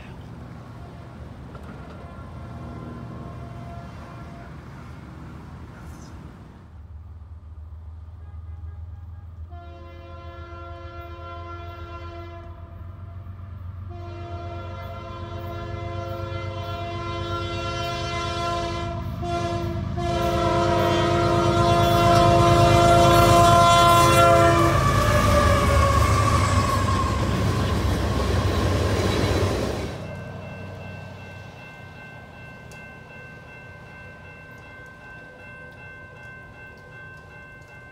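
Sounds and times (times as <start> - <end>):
train rumble: 0.0 - 37.9
train wheel clatter: 1.3 - 2.3
locomotive air horn blasts: 1.7 - 5.0, 8.1 - 27.8.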